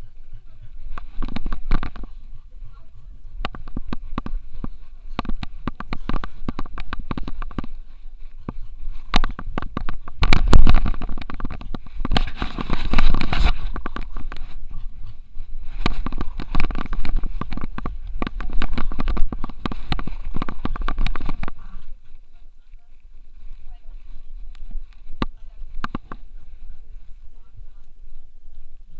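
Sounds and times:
camera knocks and rattles: 0.9 - 2.1, 3.4 - 7.8, 8.4 - 14.7, 15.7 - 21.6, 25.2 - 26.2.

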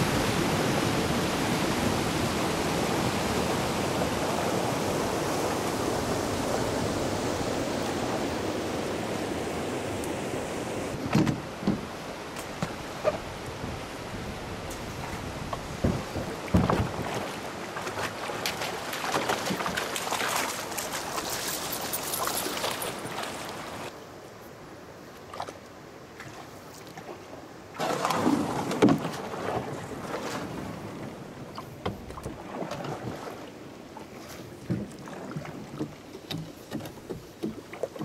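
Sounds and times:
water rippling around canoe hull: 10.9 - 23.9, 25.2 - 38.0
paddle strokes splashing: 14.6 - 23.9, 26.2 - 38.0.

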